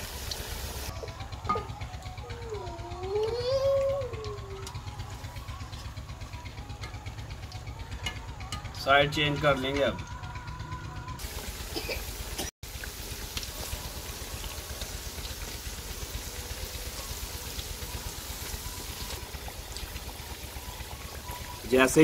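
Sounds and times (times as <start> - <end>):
food sizzling in hot oil: 0.0 - 0.9, 11.2 - 22.0.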